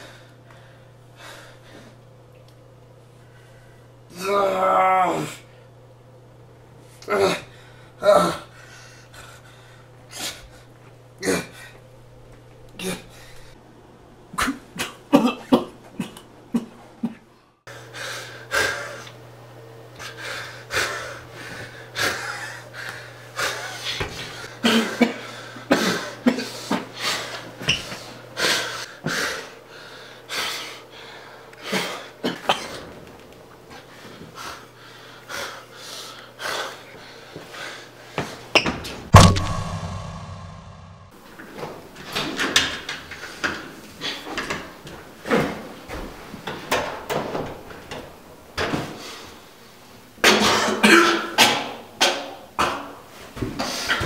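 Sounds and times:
steady low hum: 0:39.2 - 0:41.2.

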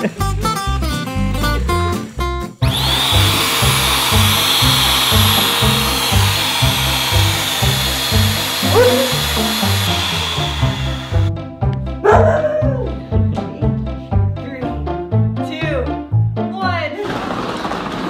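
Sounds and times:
electric air blower whining: 0:02.6 - 0:11.3.

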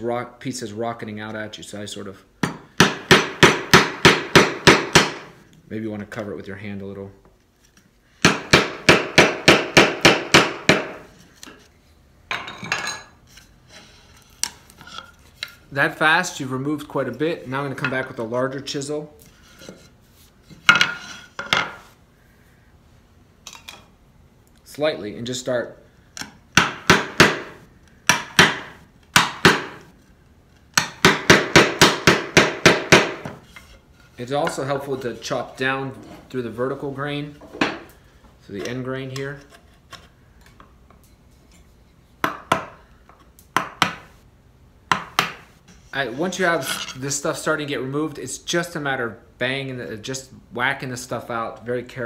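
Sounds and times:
wooden mallet striking chisel: 0:02.4 - 0:05.3, 0:08.2 - 0:11.1, 0:26.2 - 0:29.8, 0:30.7 - 0:33.4, 0:42.2 - 0:42.8, 0:43.6 - 0:44.1, 0:44.9 - 0:45.4.

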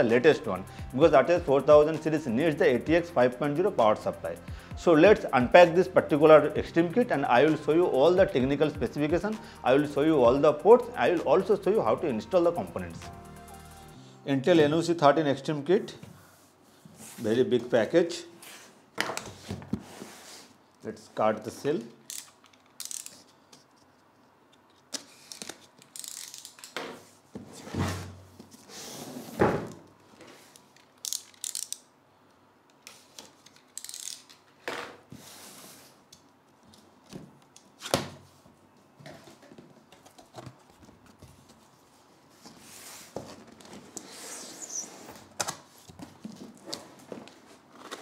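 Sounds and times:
cutter slitting tape: 0:22.0 - 0:23.3, 0:25.3 - 0:26.8, 0:31.0 - 0:31.8, 0:33.7 - 0:34.3.

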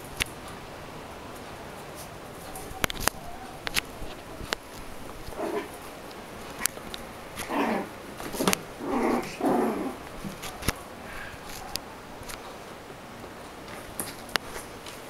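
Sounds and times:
sharp clicks: 0:02.5 - 0:07.6
small dogs growling yaps: 0:05.2 - 0:06.0, 0:07.4 - 0:12.2.

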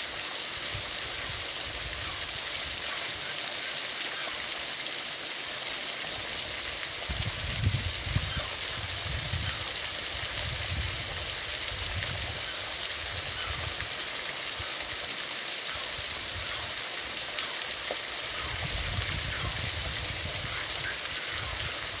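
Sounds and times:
waterfall splashing into pool: 0:00.0 - 0:22.0.

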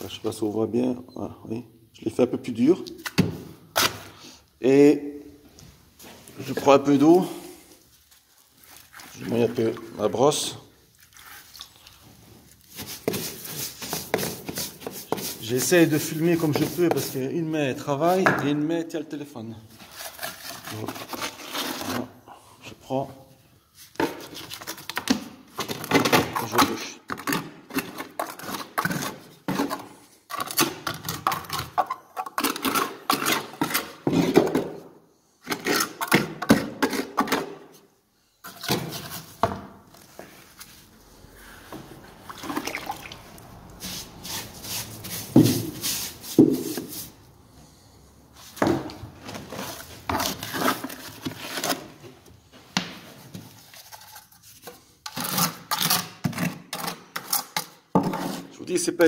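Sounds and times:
trowel scraping wet concrete: 0:12.6 - 0:17.3, 0:19.8 - 0:22.2, 0:26.4 - 0:34.4, 0:35.4 - 0:37.6, 0:40.5 - 0:47.2, 0:49.3 - 0:52.0, 0:55.0 - 0:58.5
cloth rubbing on microphone: 0:43.8 - 0:47.2.

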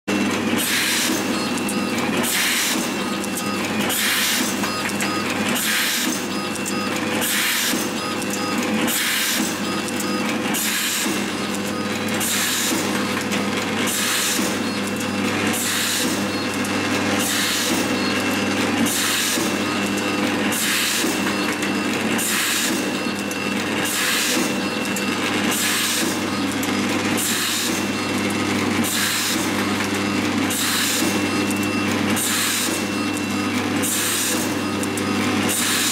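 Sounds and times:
machine hissing bursts: 0:12.2 - 0:12.9, 0:15.5 - 0:16.3, 0:17.2 - 0:18.0.

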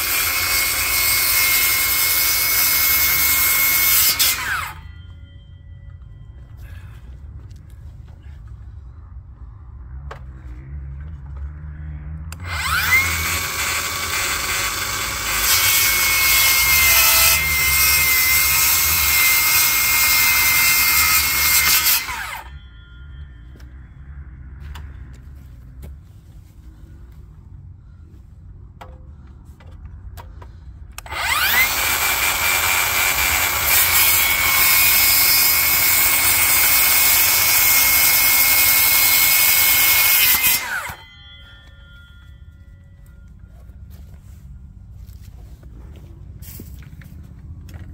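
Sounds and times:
circular saw cutting wood: 0:00.0 - 0:05.2, 0:12.3 - 0:23.3, 0:31.0 - 0:42.4.

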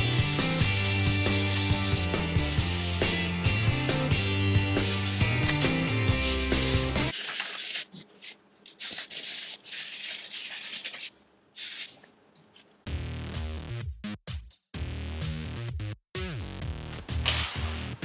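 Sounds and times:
background music: 0:00.0 - 0:07.1
sandpaper strokes on wall: 0:00.6 - 0:03.5, 0:04.7 - 0:07.9, 0:08.8 - 0:12.0.

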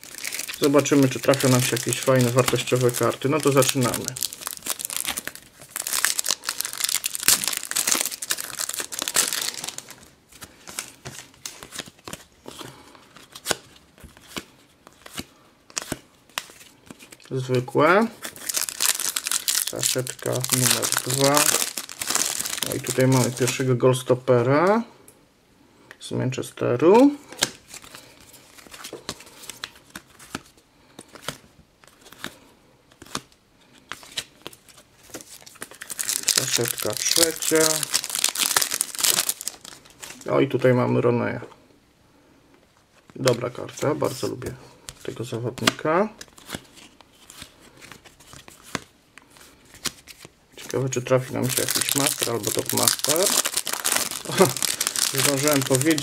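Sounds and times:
foil wrapper tearing and crinkling: 0:00.0 - 0:10.1, 0:18.2 - 0:23.6, 0:35.1 - 0:40.3, 0:51.4 - 0:56.0
cards clicking and rustling: 0:00.1 - 0:17.2, 0:45.6 - 0:48.9, 0:51.4 - 0:56.0.

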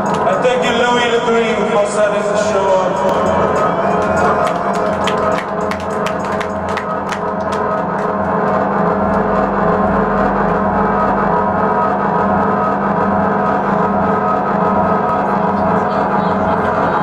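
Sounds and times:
band playing droning chord: 0:00.0 - 0:17.0
sharp ticks: 0:02.4 - 0:09.2.

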